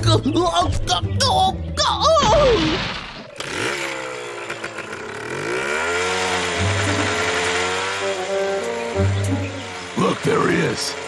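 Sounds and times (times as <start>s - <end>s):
cartoon chainsaw engine revving: 2.8s - 11.0s.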